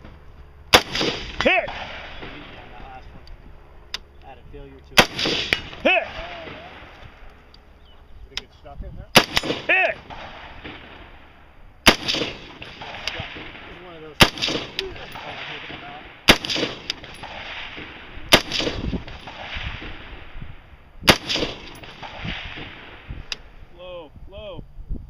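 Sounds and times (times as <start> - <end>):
rifle shots with echo: 0.7 - 3.0, 5.0 - 7.4, 9.1 - 23.6.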